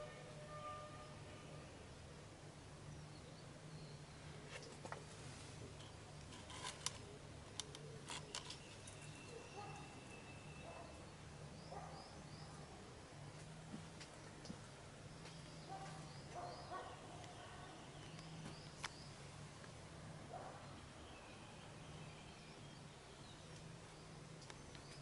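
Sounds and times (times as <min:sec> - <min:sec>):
low steady hum: 0:00.0 - 0:25.0
clicks and rustles of handling plants: 0:04.4 - 0:09.9
faint high chirps: 0:08.3 - 0:11.1.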